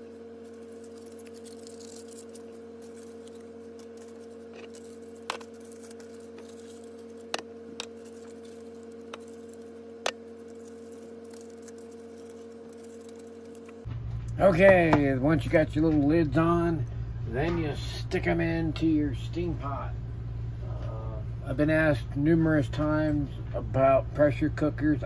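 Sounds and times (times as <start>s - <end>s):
steady hum: 0.0s - 25.0s
aluminium foil crinkling: 0.3s - 13.9s.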